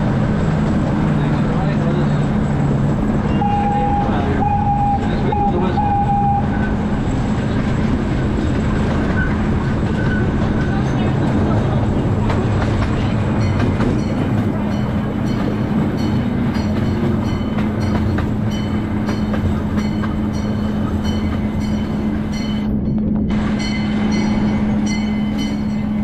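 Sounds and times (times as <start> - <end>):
train cars rumbling: 0.0 - 26.0
train engine hum: 0.0 - 26.0
wheels clicking over rail joints: 7.0 - 23.0.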